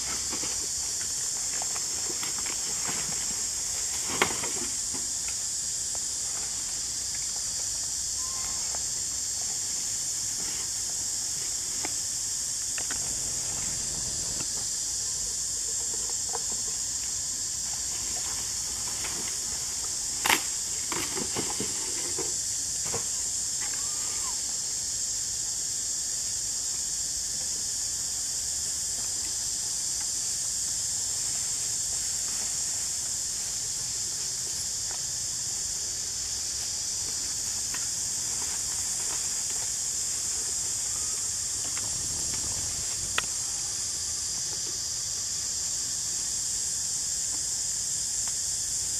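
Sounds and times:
steady high hiss: 0:00.0 - 0:48.9.

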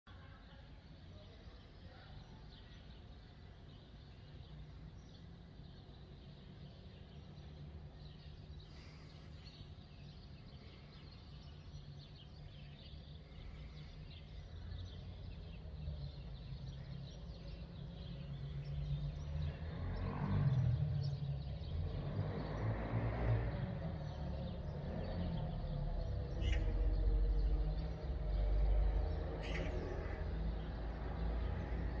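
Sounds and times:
steady low street rumble: 0:00.1 - 0:32.0
vehicle passing: 0:15.0 - 0:32.0
bird chirps: 0:23.5 - 0:32.0.

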